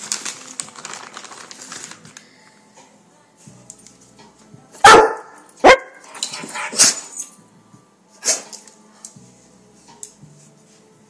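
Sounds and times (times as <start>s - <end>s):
dog barking: 4.8s - 6.0s.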